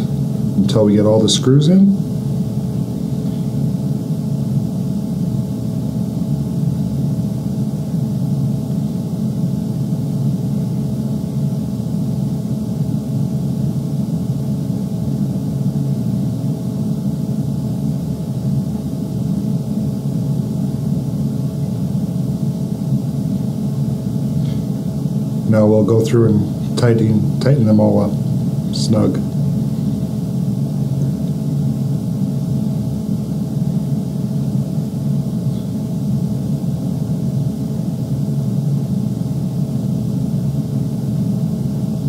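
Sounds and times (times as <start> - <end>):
steady low hum: 0.0 - 42.0.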